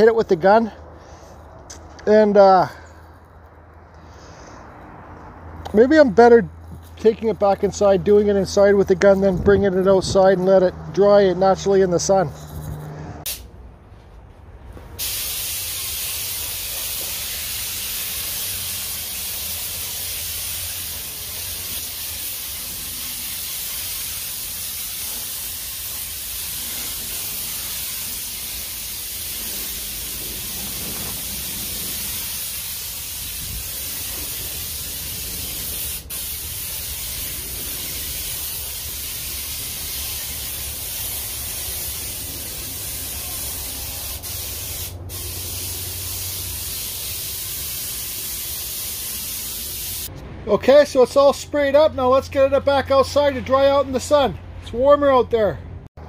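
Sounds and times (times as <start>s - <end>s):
spray gun hissing: 15.0s - 50.1s.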